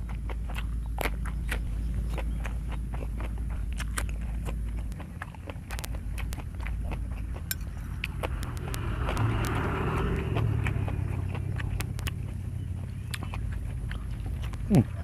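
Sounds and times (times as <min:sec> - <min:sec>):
person chewing crunchy food: 0:00.0 - 0:15.0
steady low hum: 0:00.0 - 0:15.0
vehicle passing by: 0:07.3 - 0:15.0.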